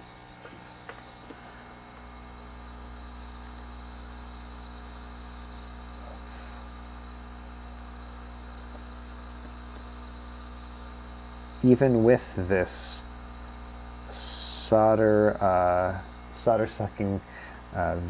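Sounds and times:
electrical hum with hiss: 0:00.0 - 0:18.0.

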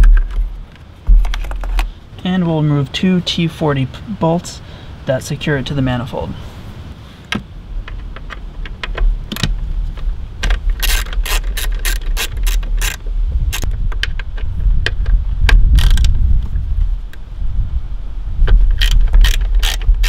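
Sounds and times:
low rumble: 0:05.8 - 0:20.0
hand ratchet clicking: 0:10.7 - 0:13.7, 0:15.8 - 0:16.1, 0:18.8 - 0:20.0.

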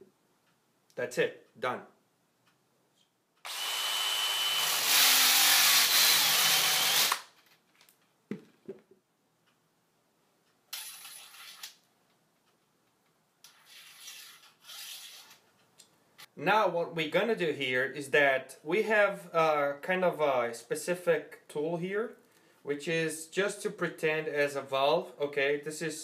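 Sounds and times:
hand drill whirring friction: 0:03.5 - 0:07.4.

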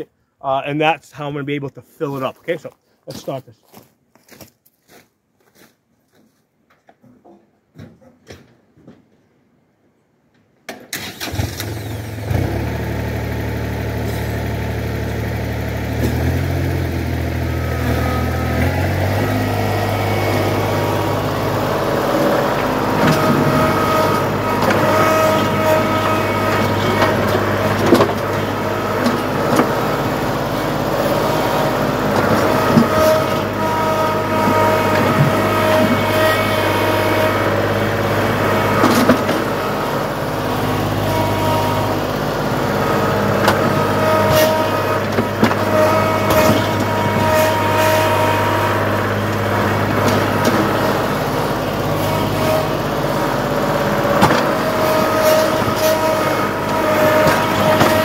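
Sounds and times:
hydraulic whine: 0:10.9 - 0:58.0
tractor diesel engine running: 0:10.9 - 0:58.0
bucket knocking and scraping rocks: 0:22.2 - 0:30.0, 0:54.1 - 0:58.0.

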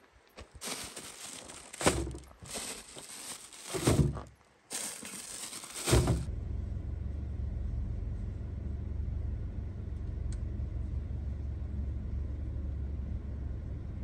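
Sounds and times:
plastic bags crinkling: 0:00.4 - 0:06.3
heavy thuds into plastic crate: 0:00.6 - 0:06.3.

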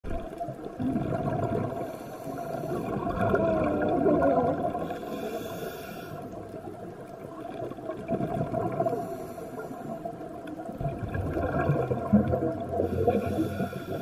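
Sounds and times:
exhaled bubbles burbling: 0:00.0 - 0:05.2, 0:06.3 - 0:09.2, 0:09.8 - 0:14.0
underwater background: 0:00.0 - 0:14.0
regulator hiss of inhaled air: 0:05.0 - 0:06.3, 0:12.9 - 0:14.0.

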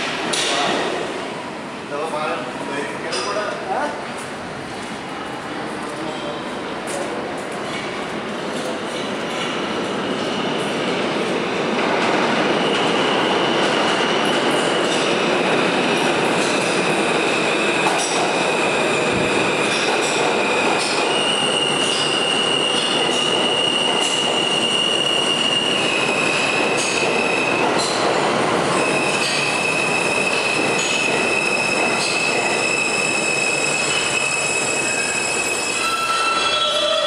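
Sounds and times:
subway train rumbling past: 0:00.0 - 0:37.0
high-pitched wheel squeal: 0:28.8 - 0:37.0.

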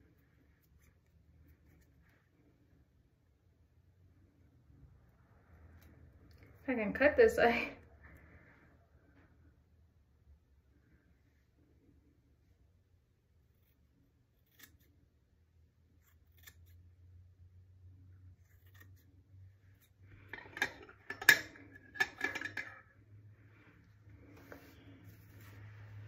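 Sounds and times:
scissors snipping hair: 0:14.4 - 0:15.0, 0:16.0 - 0:16.8, 0:18.4 - 0:20.0.

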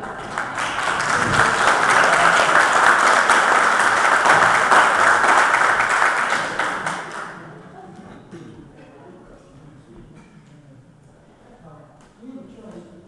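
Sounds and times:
audience applauding: 0:00.0 - 0:07.5.

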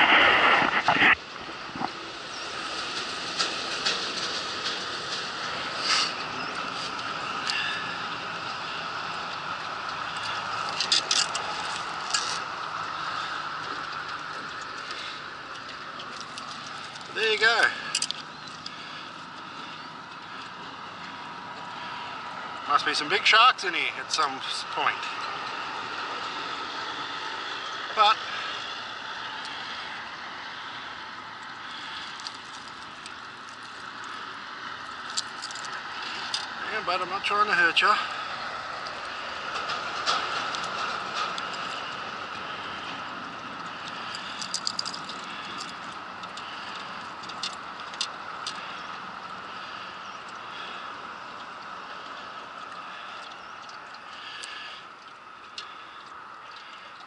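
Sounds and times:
steady rushing noise: 0:00.0 - 0:30.8
wind: 0:00.0 - 0:57.0
fishing tool clicks and rattles: 0:17.9 - 0:18.7, 0:43.8 - 0:48.6.

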